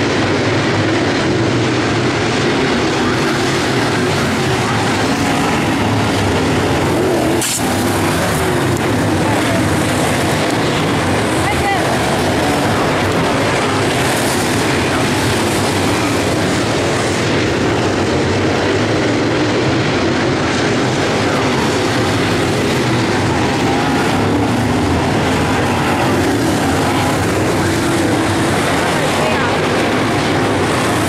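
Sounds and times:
race car engines droning: 0.0s - 31.0s.

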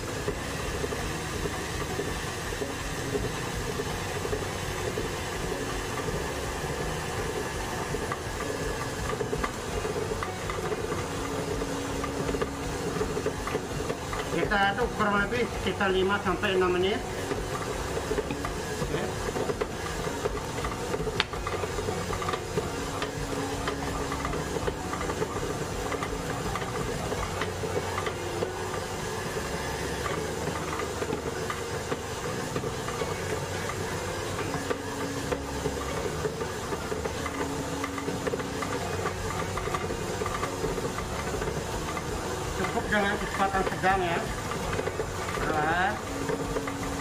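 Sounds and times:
stand mixer motor hum: 0.0s - 47.0s.

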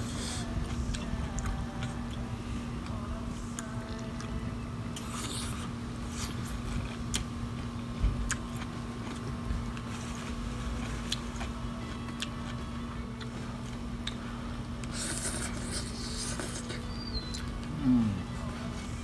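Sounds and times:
low machinery hum: 0.0s - 19.0s
grapes being bitten and chewed: 2.8s - 14.2s, 14.8s - 18.4s.

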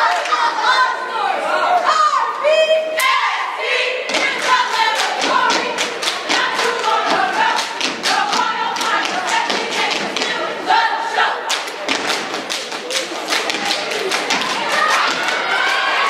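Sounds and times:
hands clapping: 4.2s - 10.4s, 11.5s - 16.0s
feet stomping: 5.2s - 10.4s, 11.8s - 15.5s
people shouting: 13.4s - 16.0s.

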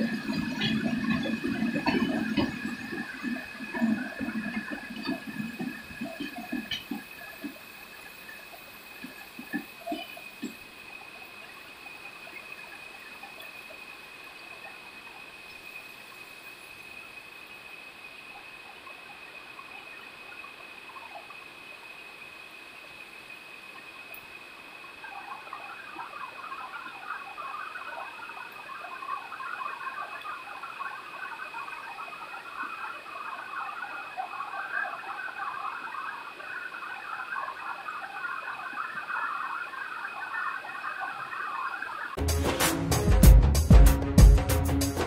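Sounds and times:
heavy rain: 0.0s - 11.0s
steady high-pitched tone: 0.0s - 23.3s.

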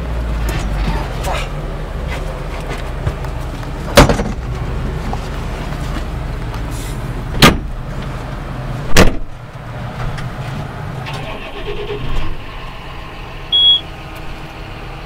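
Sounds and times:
tractor engine running: 0.0s - 15.0s
sharp loud knocks: 7.4s - 7.7s.

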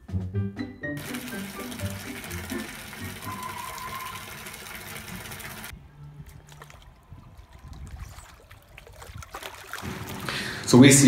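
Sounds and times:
water pouring from a hose: 1.0s - 5.7s, 6.4s - 11.0s
water splashing and sloshing: 1.0s - 11.0s.

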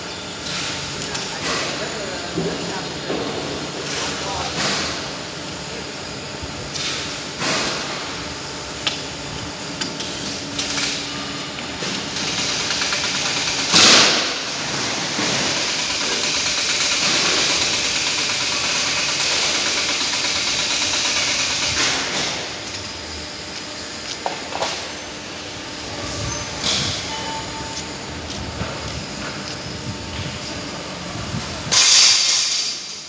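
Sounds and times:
steady machinery noise: 0.0s - 33.0s
machinery clanks: 6.7s - 33.0s.

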